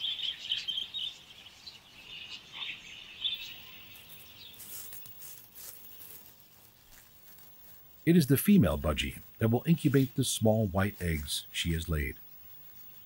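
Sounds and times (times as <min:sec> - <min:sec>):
faint scratchy rustling: 0:03.2 - 0:13.0.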